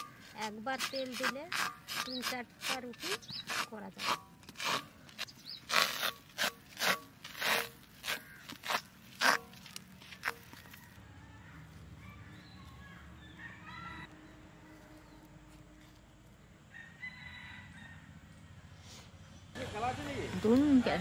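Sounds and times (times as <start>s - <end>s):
fingers scraping metal wok: 0.0s - 4.9s
faint rooster crowing: 10.5s - 15.2s, 16.7s - 18.3s.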